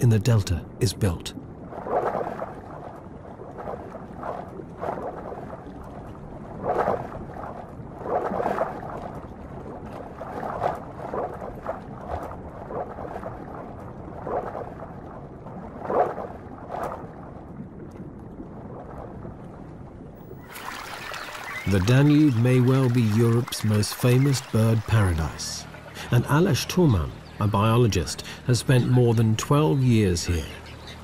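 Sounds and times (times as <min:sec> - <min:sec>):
water churning and bubbling: 0:00.0 - 0:31.0.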